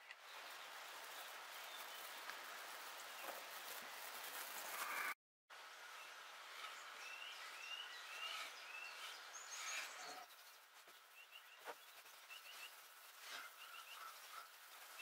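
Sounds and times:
small birds chirping: 0:00.0 - 0:05.1, 0:05.8 - 0:15.0.

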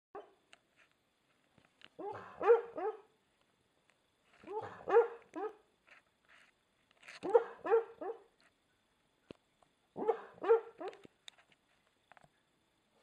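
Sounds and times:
dog barking in its sleep: 0:00.2 - 0:00.4, 0:02.0 - 0:03.1, 0:04.4 - 0:05.6, 0:07.2 - 0:08.3, 0:10.0 - 0:11.0.

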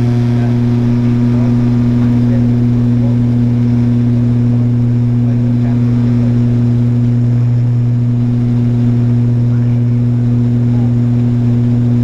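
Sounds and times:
turboprop engine drone: 0:00.0 - 0:12.0.

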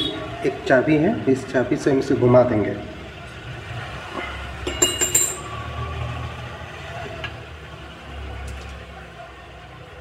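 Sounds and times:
sharp metallic clinks: 0:04.7 - 0:05.5.

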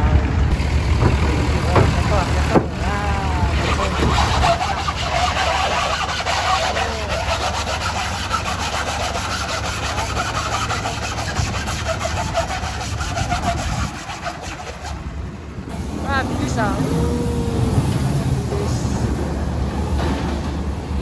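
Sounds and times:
truck engine rumble: 0:00.0 - 0:21.0
tyres scrubbing on steel ramp: 0:00.5 - 0:17.0.

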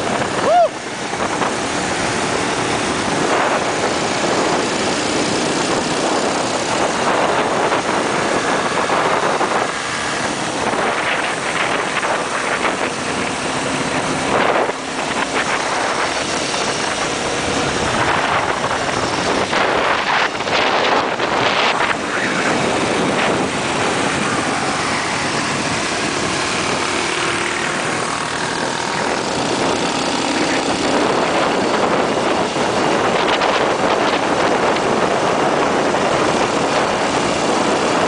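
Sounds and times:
motorcycle engines running: 0:00.0 - 0:38.0
wind buffeting microphone: 0:00.0 - 0:38.0.

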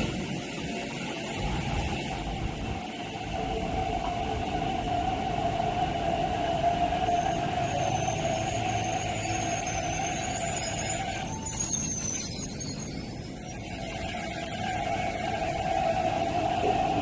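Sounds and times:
electric train motor whine: 0:00.0 - 0:17.0
wheel squeal: 0:06.9 - 0:17.0.

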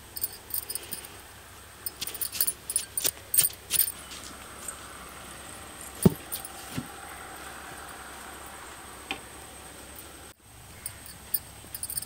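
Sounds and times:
metal bangles clinking: 0:00.0 - 0:01.2, 0:01.8 - 0:04.8, 0:05.8 - 0:06.8, 0:10.8 - 0:12.0
hand packing sandy soil: 0:01.9 - 0:04.8, 0:06.1 - 0:06.9
dull thud: 0:06.0 - 0:06.9.

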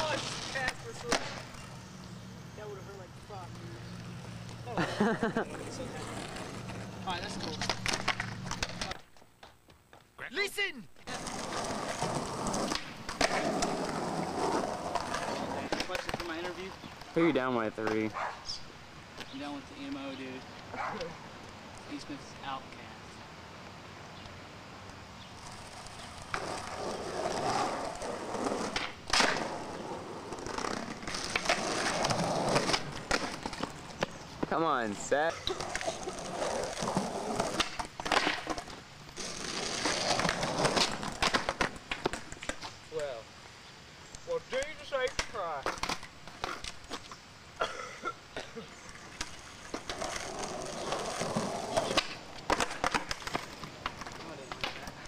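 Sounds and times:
skateboard landing clack: 0:00.0 - 0:01.5, 0:28.6 - 0:29.6, 0:37.5 - 0:38.7
skateboard clacking on pavement: 0:00.0 - 0:01.7, 0:05.5 - 0:09.5, 0:11.1 - 0:17.2, 0:25.4 - 0:42.8, 0:44.5 - 0:47.2, 0:48.8 - 0:55.0
skateboard wheels rolling on concrete: 0:00.0 - 0:55.0.

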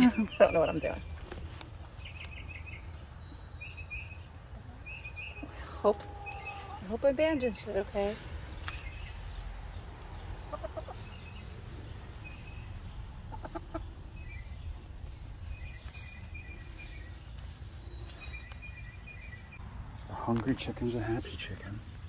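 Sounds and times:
hen clucking: 0:04.5 - 0:08.2, 0:09.9 - 0:16.7.

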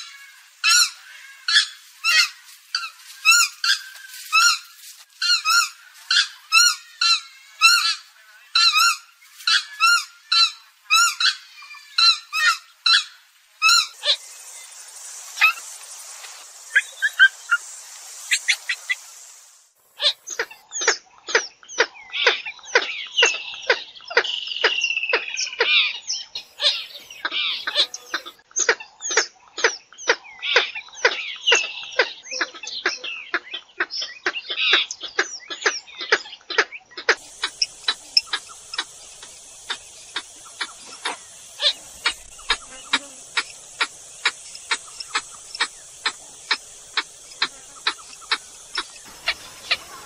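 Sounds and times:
steady high hiss: 0:00.0 - 0:20.7, 0:26.4 - 0:28.4, 0:37.2 - 0:50.0.

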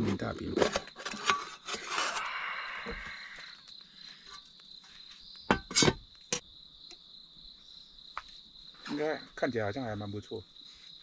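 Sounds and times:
crickets chirping: 0:00.0 - 0:11.0
metal lid clinking: 0:05.5 - 0:06.0.

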